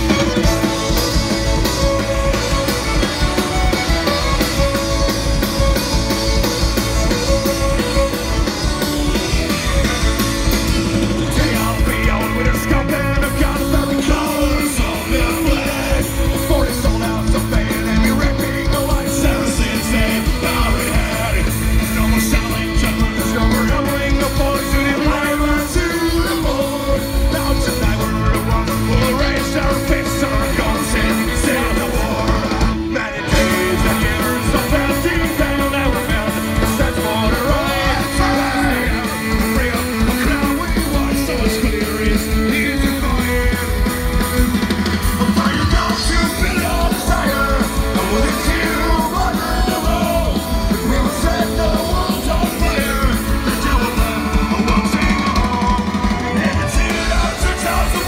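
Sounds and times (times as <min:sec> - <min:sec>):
live rock band playing: 0:00.0 - 0:58.0
man singing lead vocals: 0:00.0 - 0:58.0.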